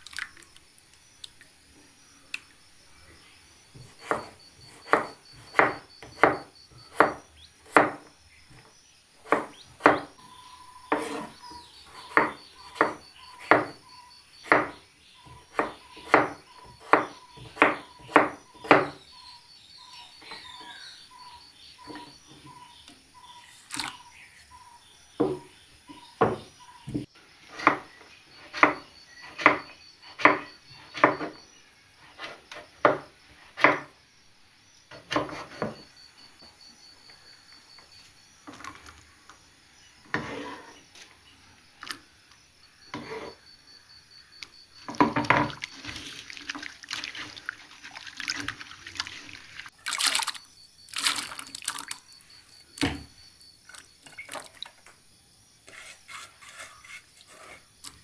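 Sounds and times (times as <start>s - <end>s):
pieces plopping into water: 0.0s - 0.6s, 45.2s - 52.0s, 53.7s - 54.9s
splashing water: 0.0s - 0.6s, 45.4s - 52.1s, 53.6s - 54.9s.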